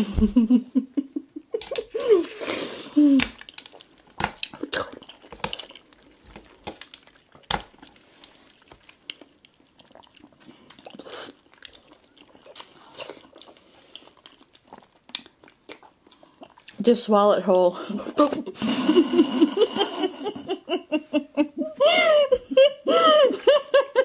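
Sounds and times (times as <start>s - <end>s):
wet sucking and chewing: 1.6s - 16.8s.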